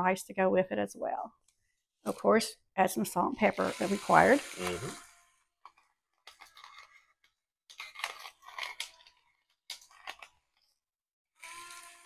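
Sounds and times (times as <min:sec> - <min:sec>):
salt grinder crunching: 0:05.7 - 0:07.1, 0:07.7 - 0:10.6.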